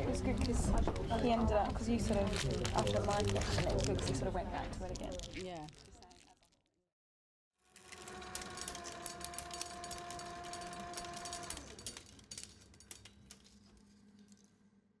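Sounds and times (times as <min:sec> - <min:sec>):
motor whine: 0:07.6 - 0:12.1
rapid crackle of clicks: 0:07.7 - 0:14.5.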